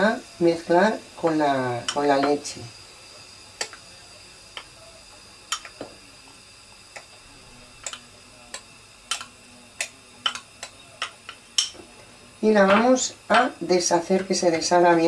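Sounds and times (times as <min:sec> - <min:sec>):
spoon and bowl clinking on glass: 0:09.1 - 0:11.8.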